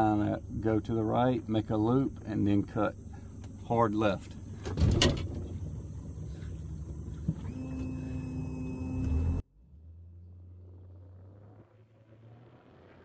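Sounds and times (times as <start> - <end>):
outboard motor running: 0.0 - 9.4
thin motor whine: 0.0 - 9.4.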